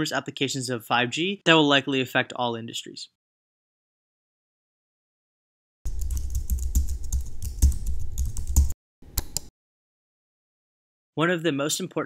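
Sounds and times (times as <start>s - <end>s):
keyboard typing: 5.9s - 9.5s
mouse clicks: 8.6s - 9.5s.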